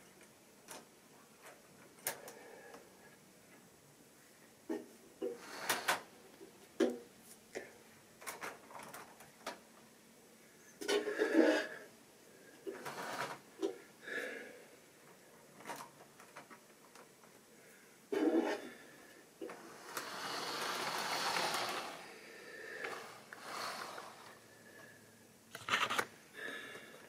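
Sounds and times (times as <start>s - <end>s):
wheels clicking over rail joints: 19.5s - 22.0s
model train motor whirring: 19.5s - 22.1s, 22.8s - 24.4s.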